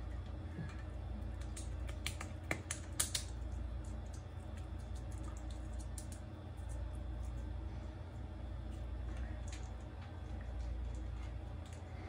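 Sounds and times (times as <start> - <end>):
steady low hum: 0.0 - 12.0
wet pats of fingers on skin: 1.3 - 7.4.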